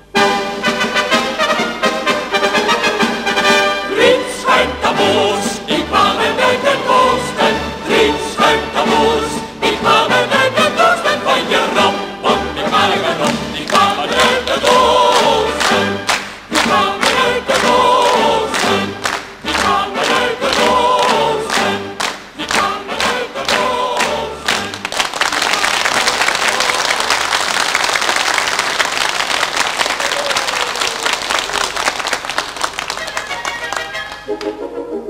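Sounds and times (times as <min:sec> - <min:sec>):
choir singing over drumbeats: 0:03.9 - 0:24.7
audience applause: 0:13.6 - 0:34.6.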